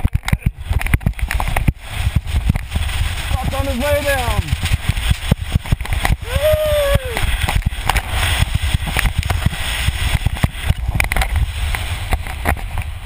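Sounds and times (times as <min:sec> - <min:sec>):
deep rumble: 0:00.0 - 0:13.0
wind buffeting microphone: 0:00.0 - 0:13.0
sandboard hissing over sand: 0:00.3 - 0:13.0
person yelling: 0:06.2 - 0:07.3.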